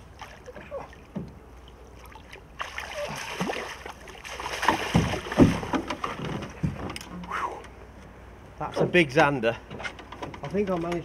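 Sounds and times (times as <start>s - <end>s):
fish thrashing in water: 2.0s - 6.2s
heavy knocks: 4.8s - 7.0s.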